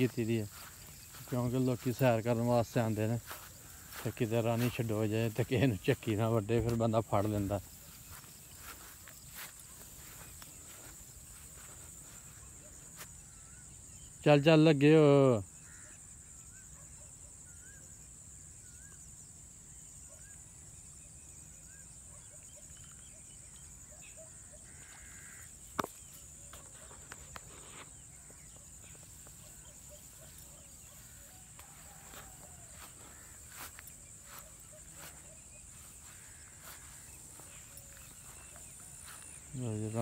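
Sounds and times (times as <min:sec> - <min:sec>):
faint birds calling: 0:21.6 - 0:40.0.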